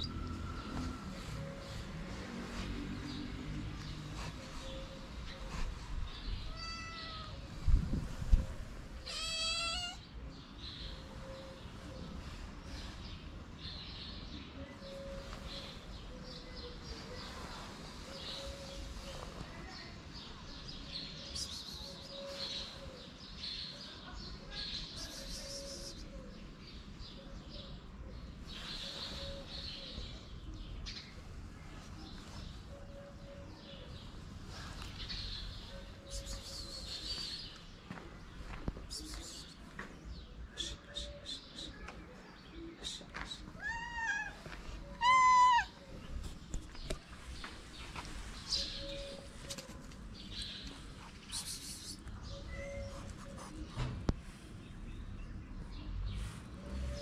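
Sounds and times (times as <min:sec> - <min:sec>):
cat meowing: 0:06.5 - 0:07.4, 0:09.0 - 0:10.0, 0:43.6 - 0:44.4, 0:45.0 - 0:45.8
small birds chirping: 0:08.9 - 0:57.0.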